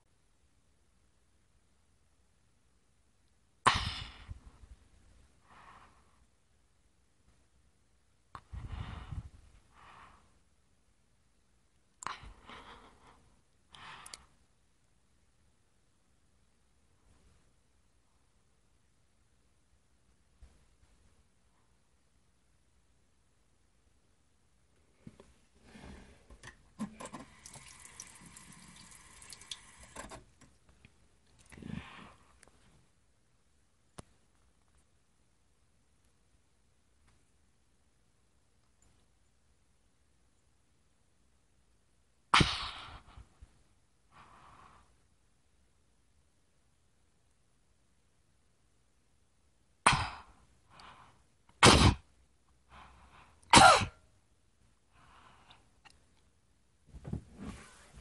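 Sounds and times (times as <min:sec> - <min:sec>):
short breaths: 0:08.4 - 0:10.4
person coughing: 0:53.5 - 0:54.0.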